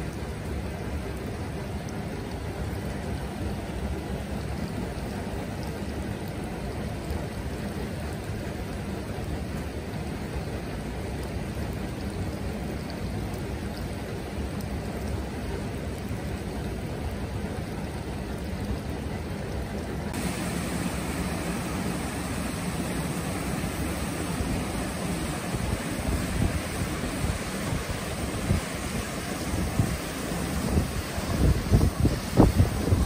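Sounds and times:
deep rushing outdoor noise: 20.0s - 33.0s
wind gusts: 20.1s - 33.0s.

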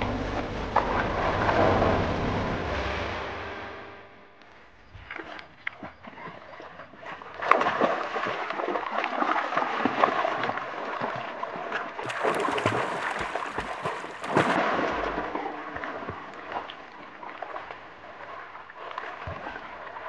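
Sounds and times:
dogs splashing through water: 5.0s - 20.0s.

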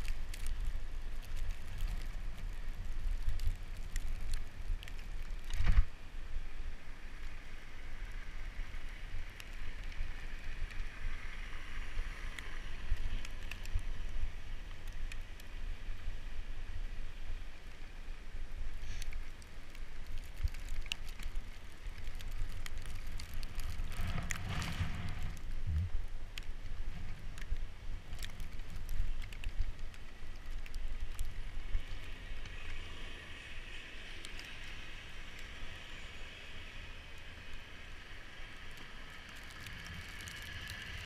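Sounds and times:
bicycle tyre and frame noise: 0.0s - 41.0s
traffic-like noise: 0.0s - 41.0s
wind rumble on microphone: 0.0s - 41.0s.

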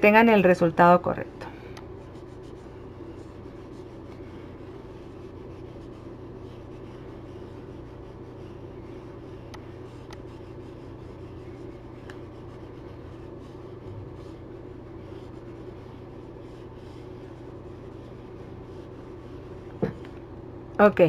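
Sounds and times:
low room hum: 0.0s - 21.0s
stylus tapping pen tablet: 3.8s - 13.6s, 19.6s - 20.3s.

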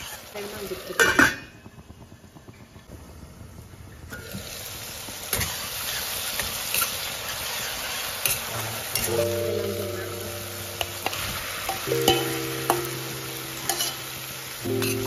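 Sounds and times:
metal spoon scraping a pan: 0.0s - 0.3s, 5.3s - 9.2s, 10.8s - 12.8s, 13.6s - 15.0s
food sizzling in a pan: 0.0s - 15.0s
spoon knocking on steel pan: 10.8s - 14.0s.

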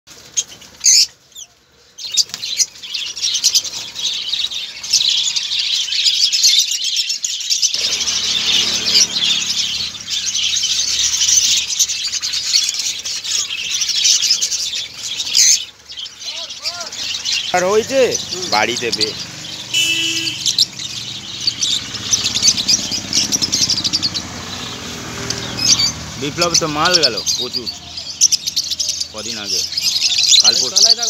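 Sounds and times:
flock of lovebirds chattering: 0.2s - 31.0s.

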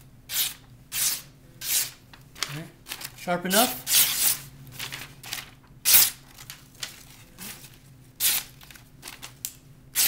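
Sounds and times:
knife slicing paper: 8.2s - 8.5s.

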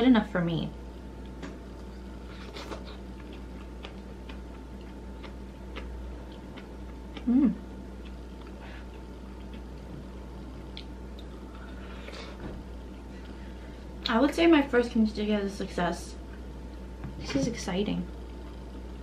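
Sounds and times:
person humming: 7.2s - 7.6s.

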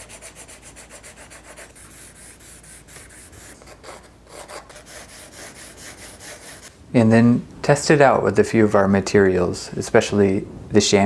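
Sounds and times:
pencil scratching on paper: 0.0s - 6.7s.

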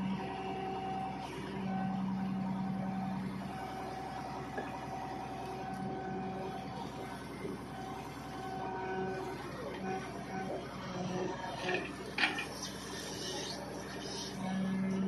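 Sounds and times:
engine running: 0.0s - 15.0s
hydraulic whine: 5.7s - 15.0s
hydraulic pile breaker: 11.0s - 15.0s.

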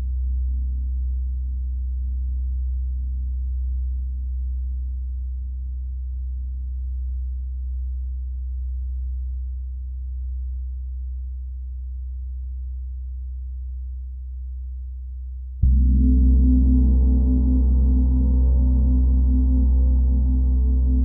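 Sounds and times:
gong humming: 15.6s - 21.0s
soft mallet striking gong: 15.6s - 21.0s.

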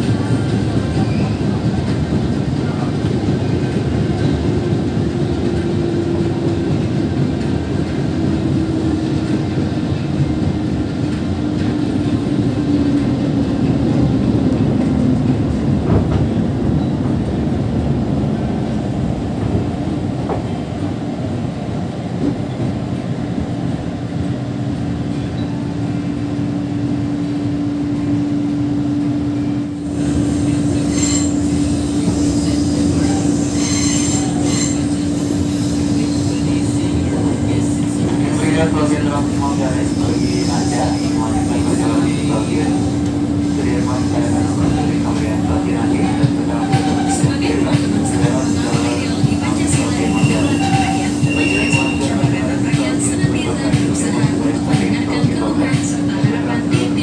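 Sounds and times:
oncoming train rushing past: 0.0s - 57.0s
electric train running noise: 29.7s - 57.0s
train motor hum: 29.7s - 57.0s.

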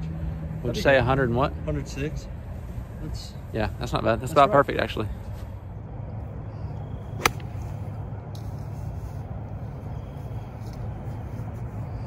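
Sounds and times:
golf club striking ball: 7.2s - 7.7s.

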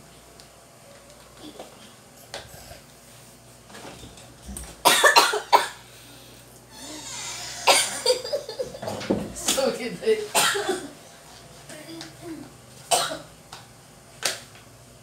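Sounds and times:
man coughing: 4.8s - 5.8s, 7.6s - 8.3s, 10.4s - 11.0s.

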